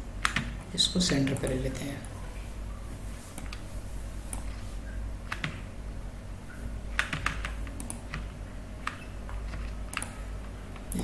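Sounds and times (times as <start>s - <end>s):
low steady hum: 0.0s - 11.0s
keyboard and mouse clicking: 0.2s - 1.6s, 5.3s - 5.7s, 6.9s - 10.2s, 10.8s - 11.0s.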